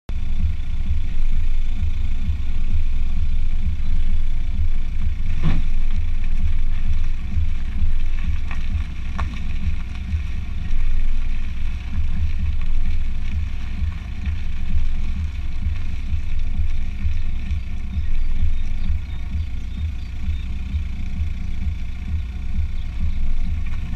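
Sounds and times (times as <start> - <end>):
car rolling rumble: 0.1 - 23.9
sharp ticks: 5.9 - 23.9.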